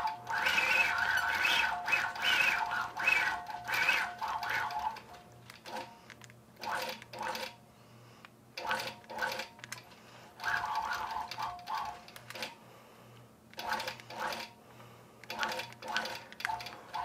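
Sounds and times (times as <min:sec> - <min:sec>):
quilting machine stitching: 0:00.0 - 0:05.9, 0:13.6 - 0:14.5, 0:15.3 - 0:17.0.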